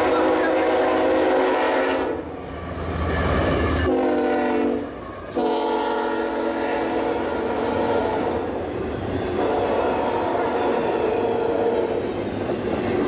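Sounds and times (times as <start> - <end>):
locomotive air horn blasts: 0.0 - 2.2, 3.8 - 8.4, 9.4 - 12.0
train wheels on rails: 0.0 - 13.0.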